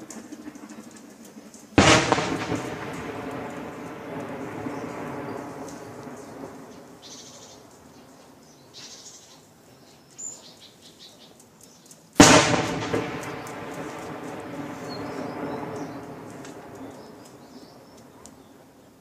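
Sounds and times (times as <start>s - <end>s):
heavy explosion echoing: 1.8s - 7.3s, 12.2s - 17.9s
birds chirping faintly: 2.4s - 19.0s.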